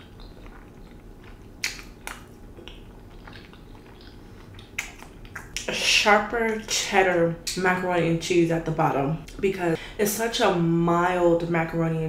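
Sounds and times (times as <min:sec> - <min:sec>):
person chewing food: 0:00.0 - 0:05.7
wet mouth sounds: 0:00.0 - 0:05.8.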